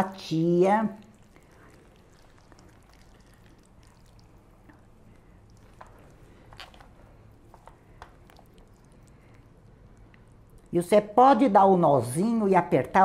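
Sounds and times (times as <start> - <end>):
wet squishing: 0.4 - 10.8.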